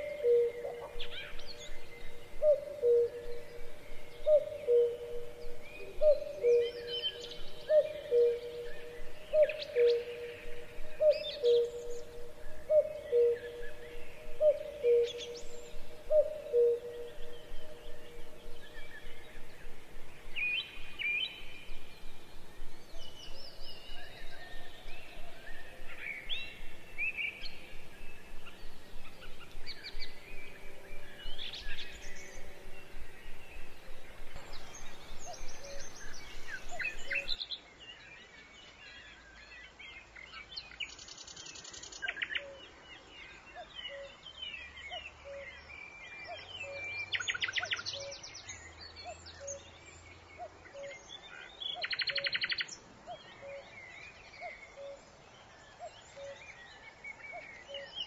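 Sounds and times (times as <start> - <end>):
birds chirping and calling: 0.0 - 37.4.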